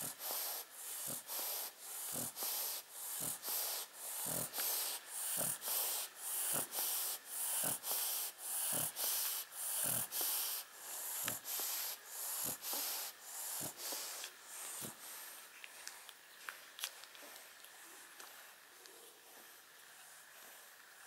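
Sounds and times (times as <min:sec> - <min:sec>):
dog breathing noisily through nose: 0:00.0 - 0:16.1
dog snorting softly: 0:00.0 - 0:16.1.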